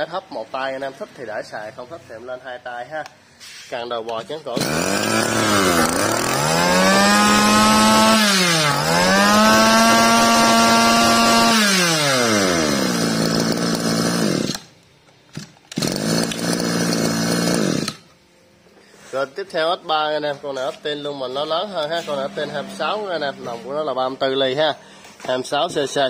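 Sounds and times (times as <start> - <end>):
brushcutter engine revving: 4.5 - 14.7, 15.7 - 18.1, 21.7 - 23.9.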